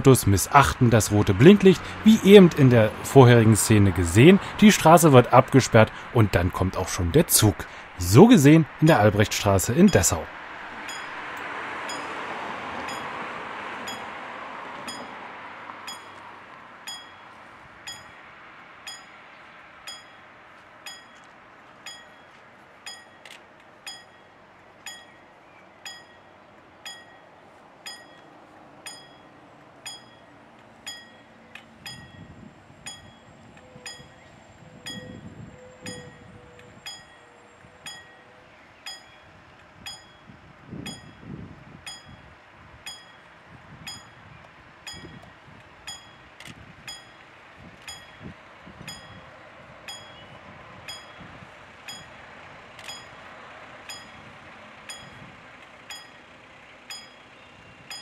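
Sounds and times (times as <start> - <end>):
level crossing bell dings: 9.7 - 13.2, 13.8 - 14.2, 14.8 - 15.2, 15.8 - 16.2, 16.8 - 18.2, 18.8 - 19.2, 19.8 - 34.2, 34.9 - 35.2, 35.8 - 38.3, 38.9 - 41.3, 41.9 - 44.2, 44.9 - 45.3, 45.9 - 46.3, 46.9 - 47.2, 47.9 - 49.3, 49.9 - 51.3, 51.9 - 52.2, 52.8 - 55.3, 55.9 - 58.0
low rumbles: 44.8 - 58.0.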